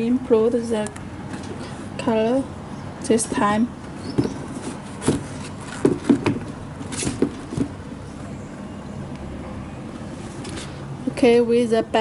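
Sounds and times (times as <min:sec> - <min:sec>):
low background hum: 0:00.0 - 0:12.0
soft knocks and rustles on cardboard: 0:04.1 - 0:07.8.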